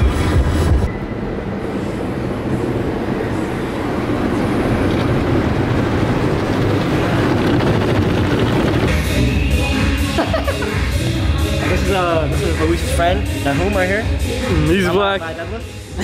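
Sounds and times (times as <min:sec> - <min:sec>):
car wash brushes and water spray: 0:04.2 - 0:10.4.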